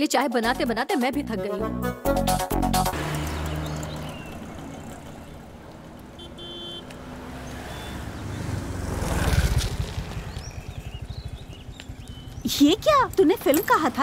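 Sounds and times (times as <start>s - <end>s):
street traffic: 2.3s - 14.0s
motor scooter approaching: 2.8s - 14.0s.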